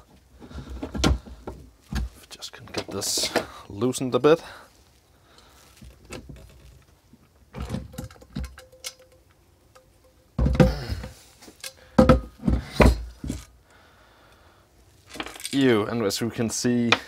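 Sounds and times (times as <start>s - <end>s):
metal clunks and thuds: 0.5s - 3.5s, 7.5s - 8.8s, 10.3s - 11.2s, 12.0s - 13.4s.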